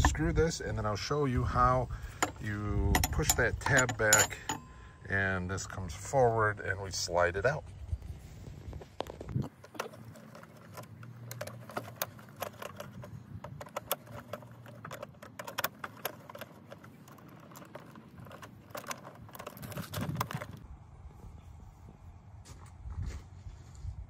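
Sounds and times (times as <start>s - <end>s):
screwdriver metal clicks and scrapes: 2.1s - 4.7s, 9.0s - 20.6s.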